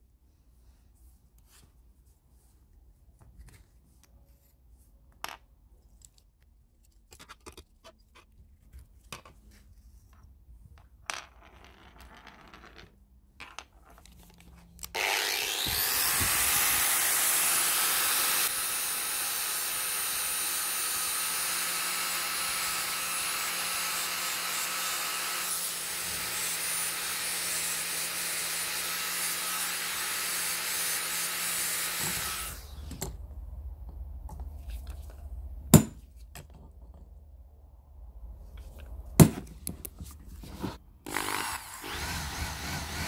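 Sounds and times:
angle grinder grinding metal: 0:15.0 - 0:32.9.

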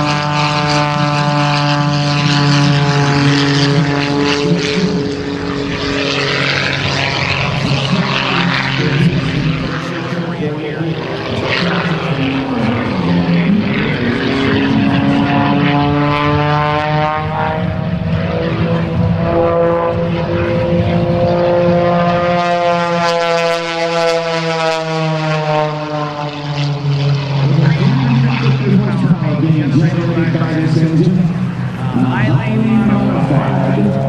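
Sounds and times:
propeller plane engine: 0:00.0 - 0:34.0.

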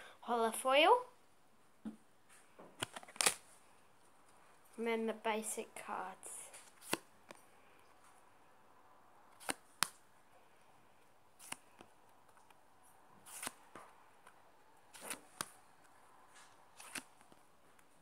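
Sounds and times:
trading cards snapping: 0:02.8 - 0:03.4, 0:06.7 - 0:07.4, 0:09.4 - 0:10.0, 0:11.4 - 0:12.6, 0:13.2 - 0:13.8, 0:14.9 - 0:15.6, 0:16.8 - 0:17.4
card sliding against card: 0:06.6 - 0:07.1, 0:09.4 - 0:09.9, 0:11.4 - 0:11.9, 0:13.2 - 0:13.6, 0:14.9 - 0:15.5, 0:16.8 - 0:17.3.

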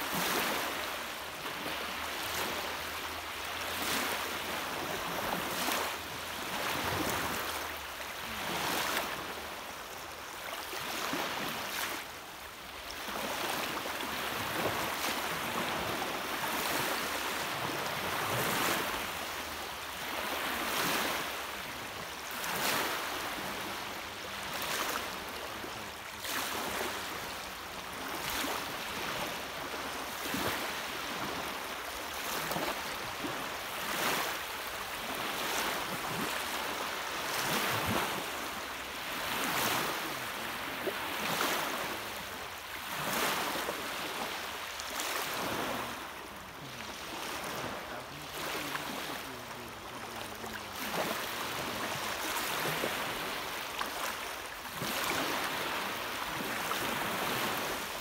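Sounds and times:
waves washing on shore: 0:00.0 - 0:58.0.

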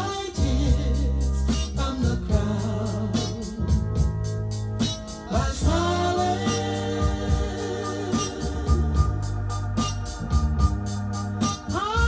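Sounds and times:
soul music playing: 0:00.0 - 0:12.0.

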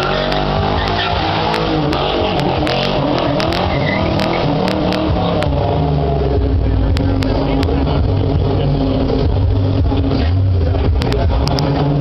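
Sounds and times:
car engine revving: 0:00.0 - 0:12.0
sharp clicks: 0:00.3 - 0:05.6.

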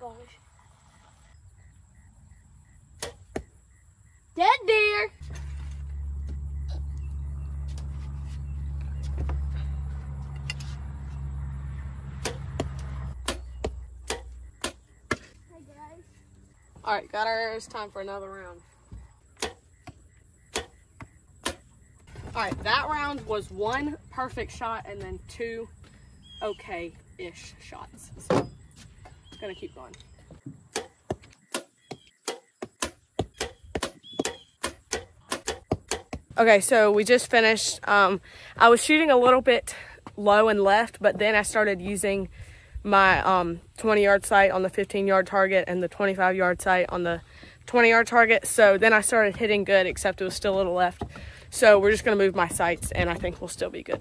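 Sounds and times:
steady low hum: 0:05.1 - 0:27.9
footsteps on wooden boards: 0:07.6 - 0:11.1, 0:49.0 - 0:54.0
bow shot clicks: 0:13.2 - 0:14.8.

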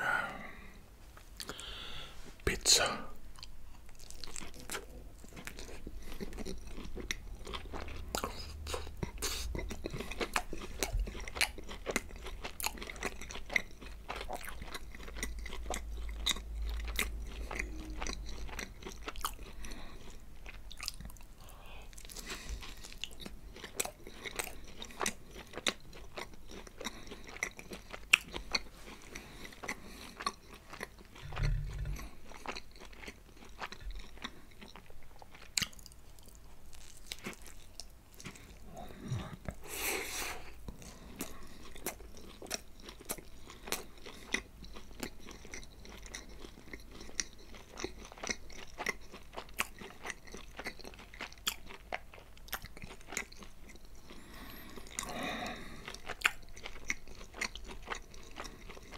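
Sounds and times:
crunchy pizza bites: 0:22.0 - 0:38.9, 0:40.7 - 0:58.9.

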